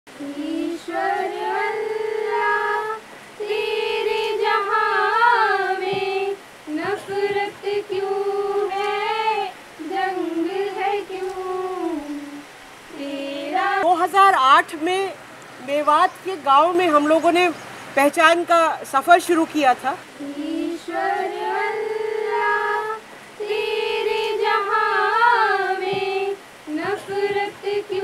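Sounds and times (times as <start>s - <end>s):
high voice singing wordless melody: 0.1s - 17.5s, 20.0s - 28.0s
singer breathing: 3.0s - 3.4s.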